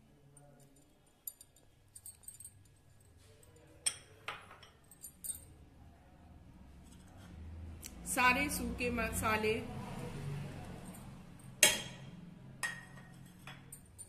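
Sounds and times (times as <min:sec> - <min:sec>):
crockery clinking on ceramic bowl: 0:03.8 - 0:05.5, 0:11.6 - 0:14.0.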